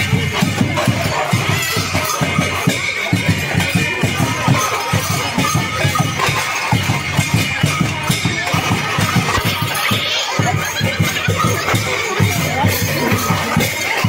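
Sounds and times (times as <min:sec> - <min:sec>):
cymbal clashing: 0:00.0 - 0:14.0
drum beating quick rhythm: 0:00.0 - 0:14.0.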